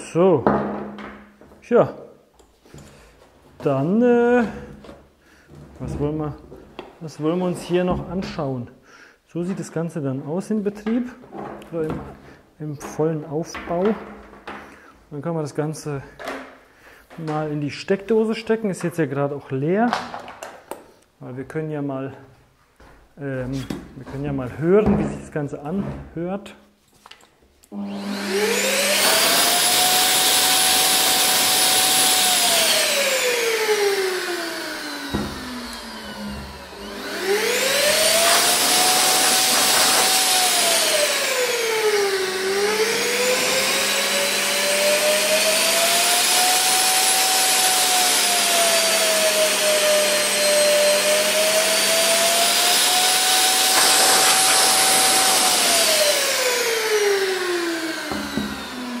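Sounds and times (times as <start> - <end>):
paint sprayer turbine whine: 27.7 - 59.0.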